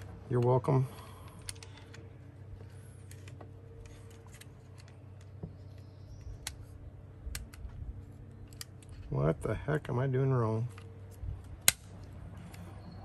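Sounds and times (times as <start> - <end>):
faint steady hum: 0.0 - 13.0
clicks of pistol parts: 0.4 - 9.1, 10.7 - 12.8.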